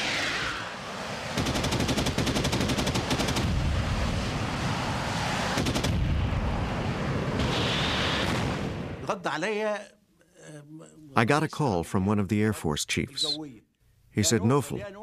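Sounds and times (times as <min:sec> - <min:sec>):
jet rushing: 0:00.0 - 0:09.0
cannon firing rapid bursts: 0:01.3 - 0:03.8, 0:05.6 - 0:06.1.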